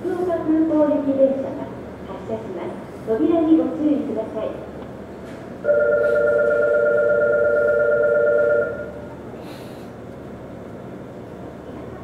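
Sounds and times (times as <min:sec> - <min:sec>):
train standing at platform: 0:00.0 - 0:12.0
electronic departure buzzer: 0:05.7 - 0:09.0
short hiss: 0:09.4 - 0:09.9.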